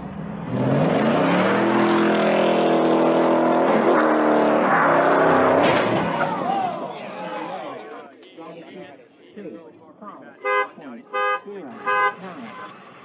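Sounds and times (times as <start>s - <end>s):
car engine revving hard: 0.0s - 6.2s.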